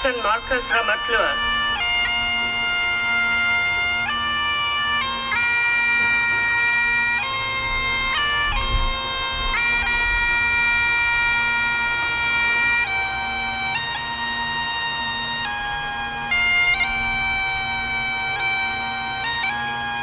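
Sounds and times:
bagpipes playing slow tune: 0:00.0 - 0:20.0.

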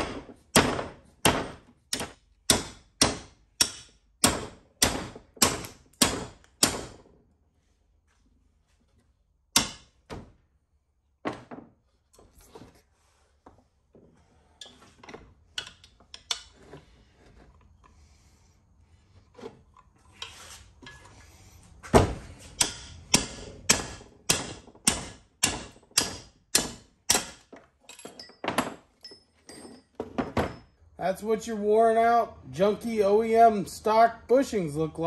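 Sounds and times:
hammer striking metal: 0:00.0 - 0:06.9, 0:22.6 - 0:27.4.

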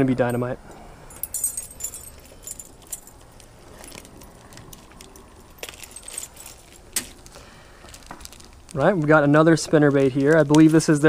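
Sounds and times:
metal lure blades jingling: 0:00.0 - 0:06.8
plastic bag rustling: 0:02.0 - 0:11.0.

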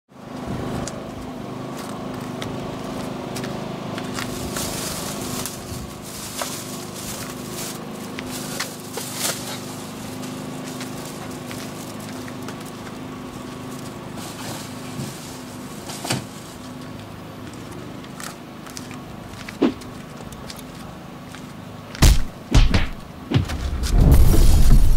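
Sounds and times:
low mechanical hum: 0:00.1 - 0:24.9
footsteps: 0:00.4 - 0:24.9
plastic bags rustling: 0:04.0 - 0:17.0.

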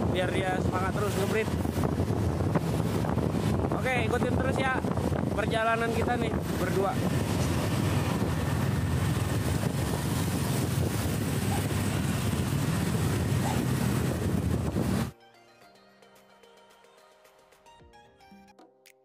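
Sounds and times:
motorbike engine and road noise: 0:00.0 - 0:15.1
wind buffeting microphone: 0:00.0 - 0:15.1.

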